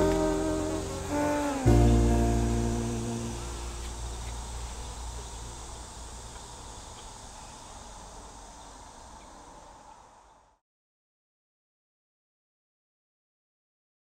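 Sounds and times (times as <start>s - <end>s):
low background rumble: 0.0s - 6.5s
insects calling: 0.0s - 10.6s.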